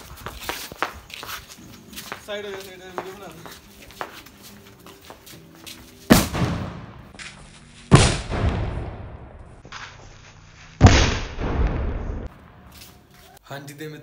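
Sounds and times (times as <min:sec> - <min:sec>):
firecrackers exploding with echo: 0:06.1 - 0:07.2, 0:07.9 - 0:09.8, 0:10.8 - 0:12.7.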